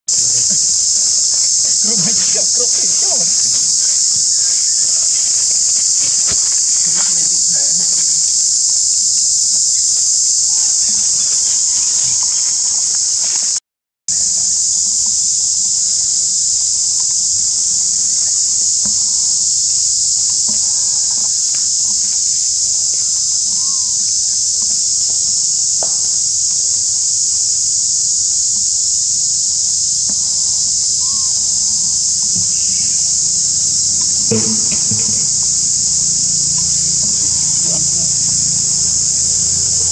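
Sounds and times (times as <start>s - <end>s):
faint short calls: 0.1s - 8.9s, 30.0s - 39.9s
insects buzzing: 0.1s - 39.9s.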